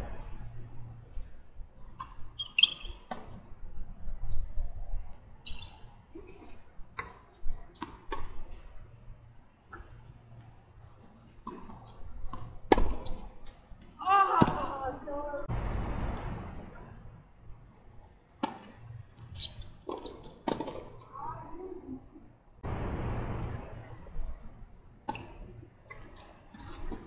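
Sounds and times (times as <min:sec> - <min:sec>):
shoes squeaking on court: 0:02.0 - 0:03.4, 0:05.4 - 0:08.3, 0:10.8 - 0:14.7, 0:18.6 - 0:21.2, 0:25.1 - 0:27.0
tennis ball struck by rackets: 0:11.4 - 0:13.2, 0:18.4 - 0:18.8, 0:19.9 - 0:20.9.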